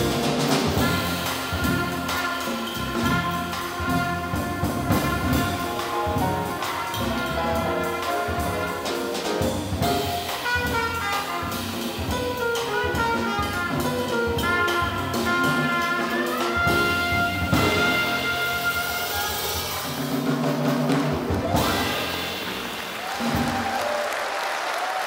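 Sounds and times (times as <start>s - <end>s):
upright bass: 0.0s - 19.8s
trumpet: 0.0s - 20.6s, 21.4s - 23.8s
drum kit beat: 0.0s - 24.1s
grand piano: 0.0s - 24.4s.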